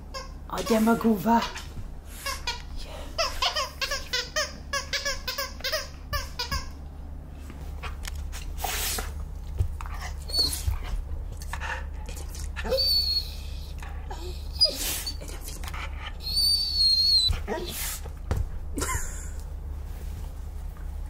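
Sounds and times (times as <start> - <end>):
dog whining and yipping: 10.1 - 10.9, 12.6 - 15.3, 16.1 - 17.8.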